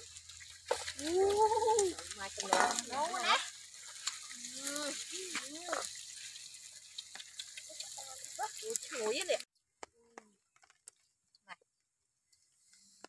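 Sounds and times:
food sizzling in a frying pan: 0:00.0 - 0:09.5.

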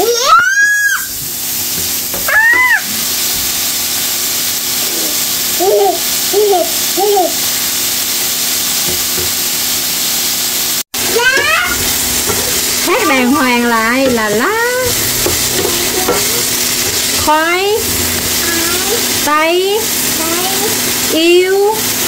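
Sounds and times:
baby squealing and babbling: 0:00.0 - 0:01.1, 0:02.2 - 0:02.9, 0:04.9 - 0:07.4
meat sizzling in a pan: 0:00.0 - 0:22.0.

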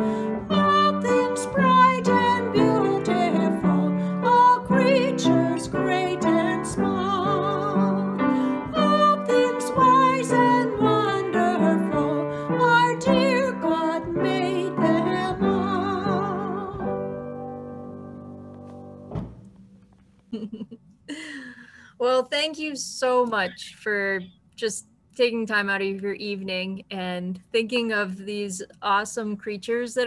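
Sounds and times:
woman singing with vibrato: 0:00.0 - 0:17.1
piano chords: 0:00.0 - 0:20.0.

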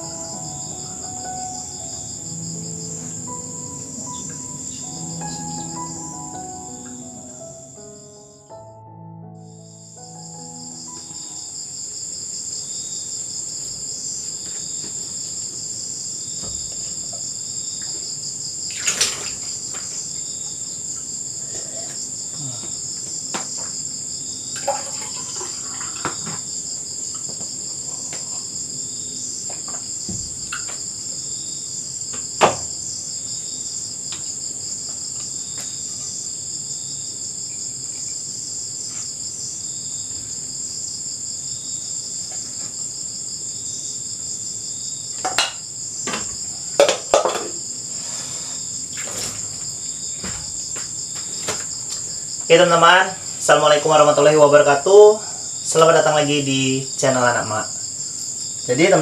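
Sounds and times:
night insects chirring: 0:00.0 - 0:59.0
dishes and utensils clinking: 0:46.8 - 0:47.6.

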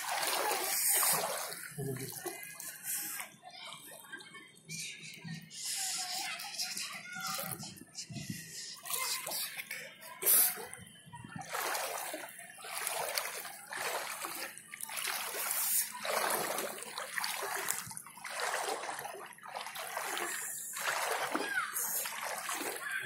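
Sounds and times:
feet wading through water: 0:00.0 - 0:04.0, 0:08.9 - 0:23.0.

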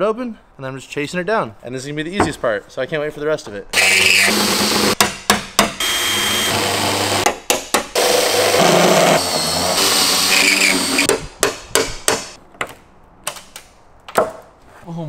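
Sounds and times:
power drill cutting metal: 0:03.8 - 0:05.0, 0:05.8 - 0:07.3, 0:08.0 - 0:11.1.

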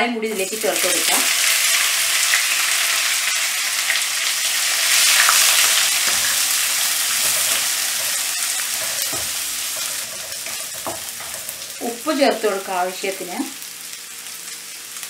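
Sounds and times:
onions sizzling in oil: 0:00.2 - 0:15.0
spatula tapping and scraping pan: 0:05.2 - 0:11.8.

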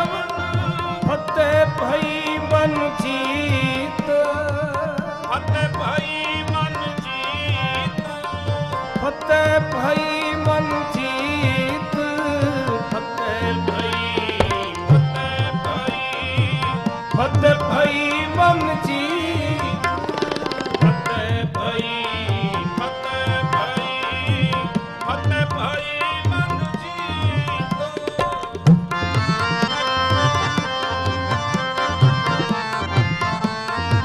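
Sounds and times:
harmonium notes: 0:00.0 - 0:34.0
man singing: 0:00.0 - 0:34.0
tabla playing rhythm: 0:00.0 - 0:34.0.

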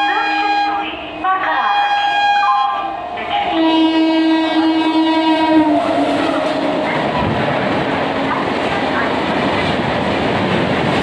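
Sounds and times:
train horn blowing: 0:00.0 - 0:00.8, 0:01.6 - 0:02.9, 0:03.5 - 0:07.0
train coaches rushing and rattling: 0:00.8 - 0:11.0.

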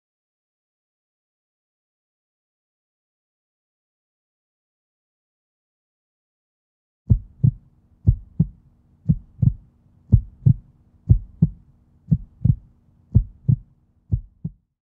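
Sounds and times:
faint steady hum: 0:07.1 - 0:14.6
heartbeat thumps: 0:07.1 - 0:14.6.

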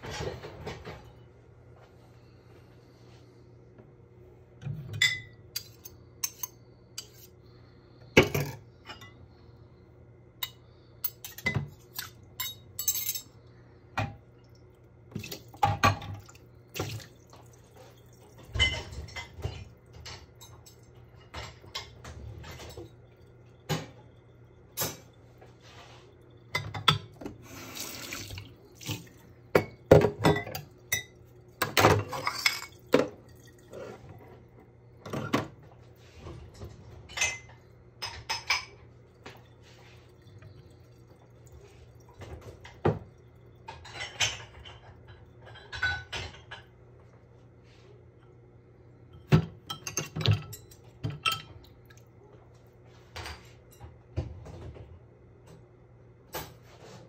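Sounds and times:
dishes clinking in a sink: 0:00.0 - 0:01.3, 0:04.6 - 0:07.3, 0:08.1 - 0:09.4, 0:10.4 - 0:14.3, 0:15.1 - 0:47.2, 0:49.0 - 0:55.6, 0:56.3 - 0:57.0
water running and splashing: 0:27.4 - 0:29.4.

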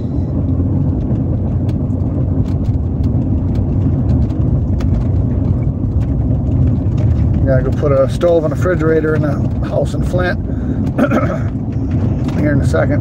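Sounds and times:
tyre rumble inside vehicle: 0:00.0 - 0:13.0
small knocks and rattles: 0:00.6 - 0:13.0.

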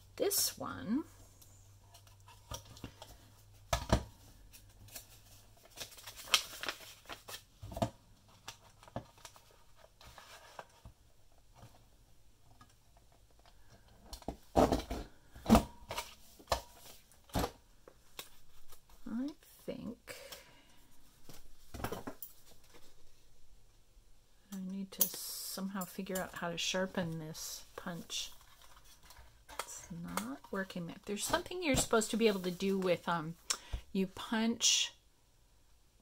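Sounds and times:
paper rustling and scraping: 0:04.3 - 0:07.8.

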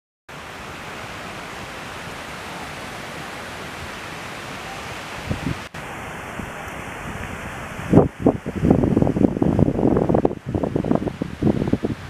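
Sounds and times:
strong wind rushing: 0:05.0 - 0:12.0
wind buffeting microphone: 0:05.1 - 0:12.0.

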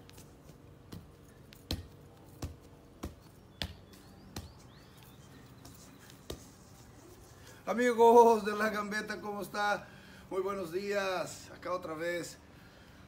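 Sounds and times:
ball thudding on feet: 0:00.0 - 0:06.6.

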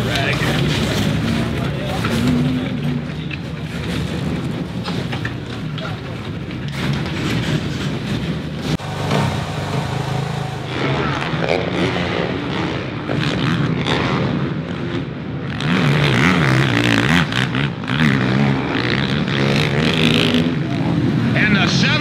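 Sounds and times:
motocross engines revving: 0:00.0 - 0:22.0
motorbike engine idling: 0:08.6 - 0:11.0.

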